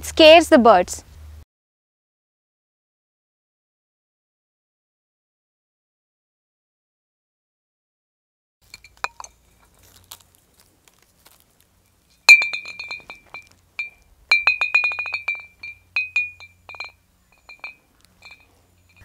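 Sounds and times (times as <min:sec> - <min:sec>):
glass bottles clinking: 0:08.6 - 0:09.7, 0:12.2 - 0:19.0.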